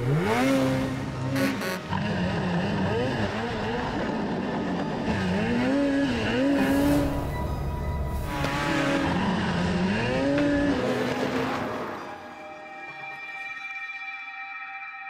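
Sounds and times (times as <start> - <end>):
snowmobile engine revving: 0.0 - 7.3, 8.2 - 11.9.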